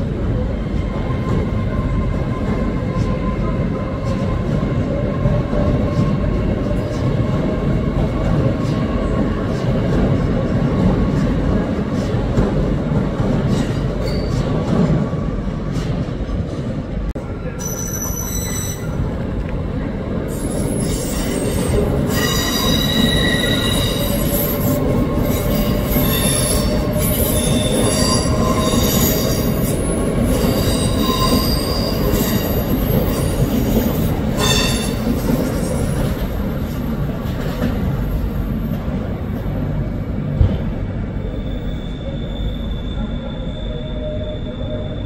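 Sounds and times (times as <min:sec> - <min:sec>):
low train rumble: 0:00.0 - 0:45.0
train wheels squealing on rails: 0:13.4 - 0:15.0, 0:17.4 - 0:19.2, 0:20.3 - 0:37.1, 0:41.1 - 0:45.0.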